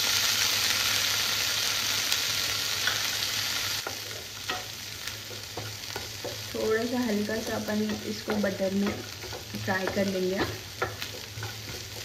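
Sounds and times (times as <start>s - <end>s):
vegetables sizzling in butter: 0.0s - 12.0s
wooden spatula tapping pan: 5.3s - 12.0s.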